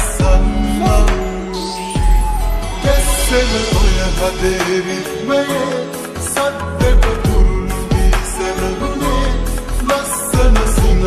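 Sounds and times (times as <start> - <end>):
slowed reverb-heavy pop song: 0.0 - 11.0
deep sliding bass hits: 2.0 - 4.9.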